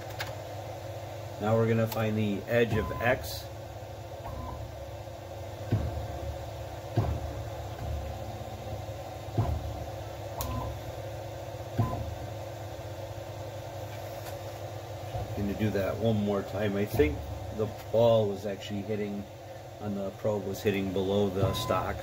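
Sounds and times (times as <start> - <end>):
steady machine hum: 0.0 - 22.0
stepper motor thumps: 1.8 - 14.0, 14.6 - 19.0, 21.0 - 22.0.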